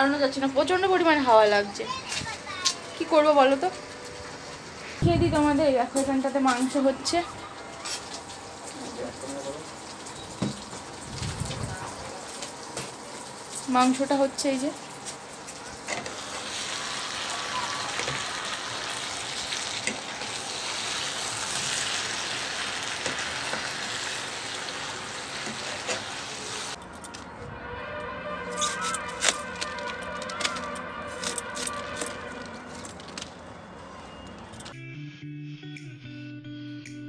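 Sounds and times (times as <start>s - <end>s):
meat sizzling in a frying pan: 7.8s - 26.8s.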